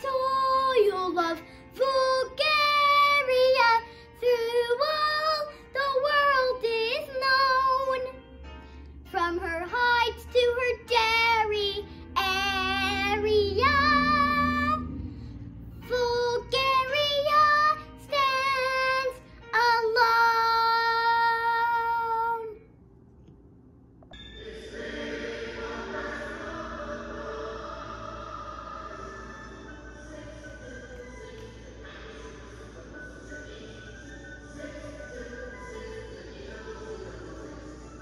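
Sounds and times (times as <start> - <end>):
girl singing: 0.0 - 8.3, 9.0 - 14.9, 15.8 - 22.7.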